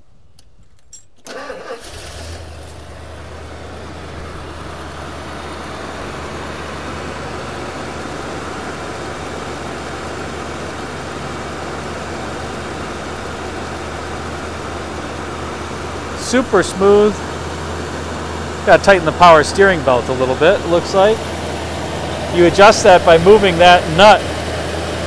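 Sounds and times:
engine cranking: 0.8s - 5.2s
car engine idling: 1.3s - 25.0s.

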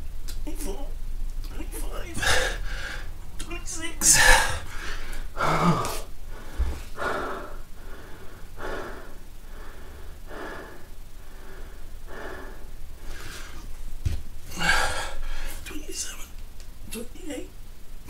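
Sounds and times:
man breathing hard: 2.1s - 3.2s, 4.1s - 13.7s, 14.5s - 15.6s.

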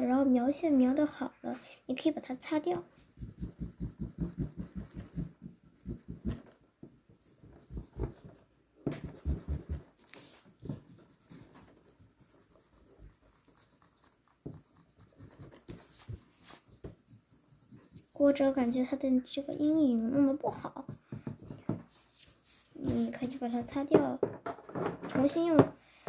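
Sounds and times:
eraser rubbing on paper: 3.1s - 6.5s, 9.0s - 18.6s, 21.9s - 23.5s.

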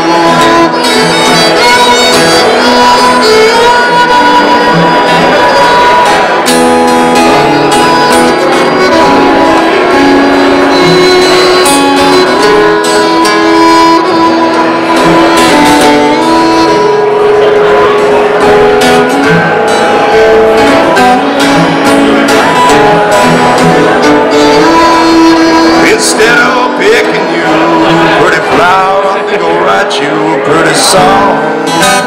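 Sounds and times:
acoustic guitar accompaniment: 0.0s - 32.0s
fiddle playing long notes: 0.0s - 32.0s.

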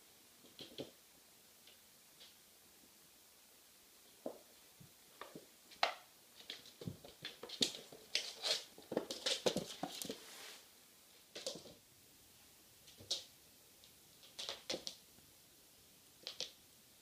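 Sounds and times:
kitten paws scrabbling on floor: 5.2s - 10.6s, 11.2s - 11.8s.

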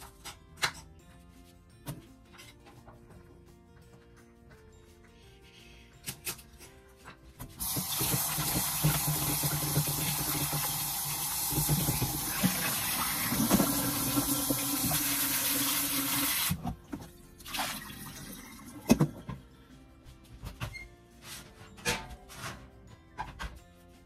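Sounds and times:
tap running into metal bowl: 7.6s - 16.2s.

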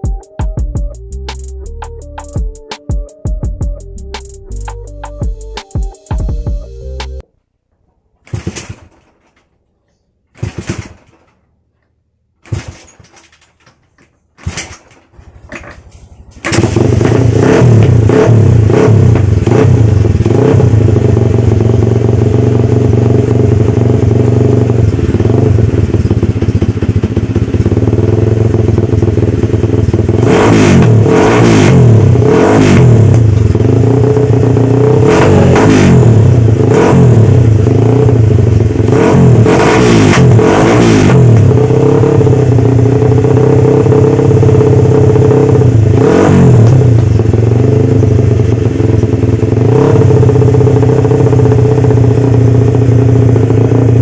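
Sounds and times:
motorcycle kick-start bursts: 8.2s - 9.5s, 10.3s - 11.5s, 12.4s - 22.3s
engine revving in quick blips: 14.4s - 21.0s, 30.1s - 38.2s, 38.8s - 42.4s, 45.3s - 47.4s, 49.6s - 50.5s
motorcycle engine idling loudly: 15.2s - 54.0s.

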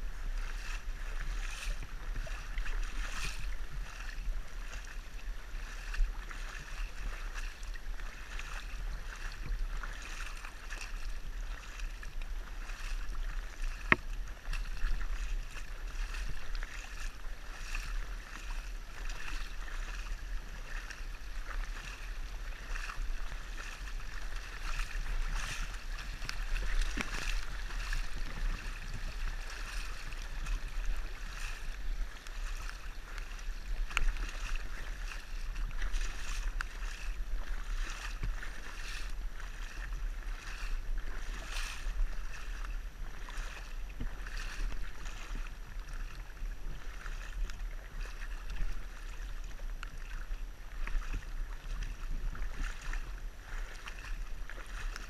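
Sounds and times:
steady low rumble: 0.0s - 41.2s
creek water rushing and splashing: 0.0s - 55.0s
small splashes and knocks: 0.4s - 55.0s.

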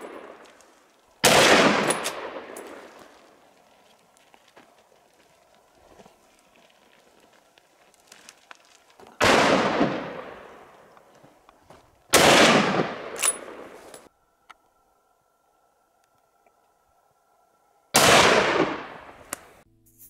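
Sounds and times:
rifle shots with rolling echo: 0.0s - 0.5s, 1.2s - 3.4s, 9.2s - 10.9s, 12.1s - 13.9s, 17.9s - 19.6s.

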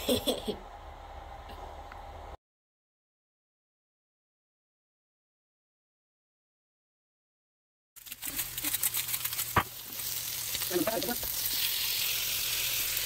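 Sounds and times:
chicken sizzling on a griddle: 8.0s - 13.0s.

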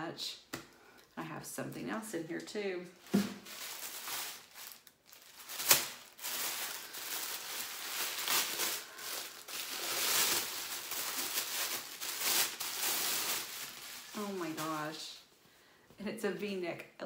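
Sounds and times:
tissue paper rustling: 2.9s - 15.0s.

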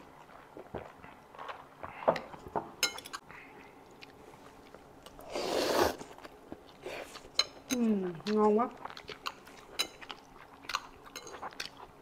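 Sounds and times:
tableware clinking: 2.8s - 3.2s
person slurping noodles: 5.2s - 6.1s.

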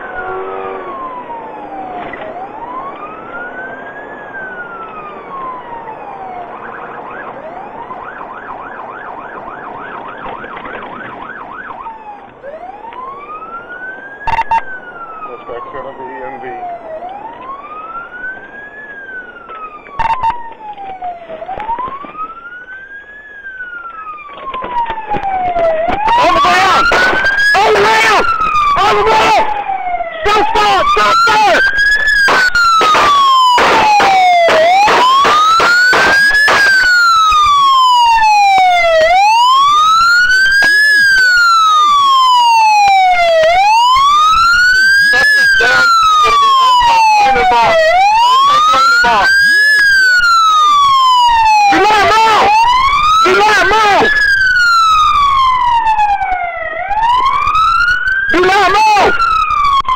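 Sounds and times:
police siren wailing: 0.0s - 59.9s
sharp cracks: 31.6s - 37.7s.

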